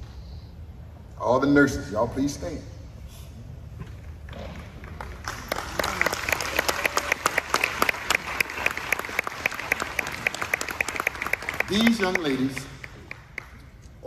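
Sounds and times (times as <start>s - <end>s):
audience applauding: 4.6s - 13.6s.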